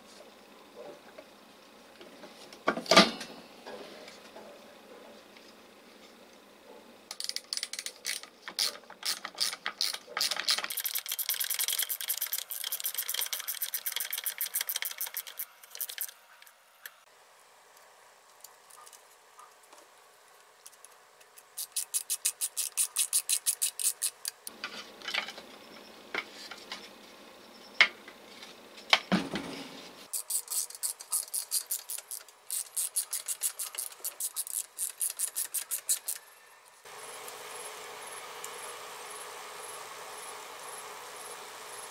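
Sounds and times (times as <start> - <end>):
ratcheting screwdriver clicking: 7.1 - 16.2, 30.2 - 36.2.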